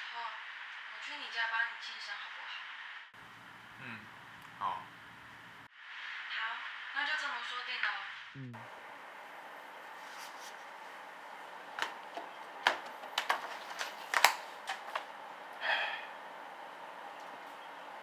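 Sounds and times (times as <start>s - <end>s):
paper sliding rustle: 9.9s - 10.7s
paper pages crackling: 11.8s - 15.1s.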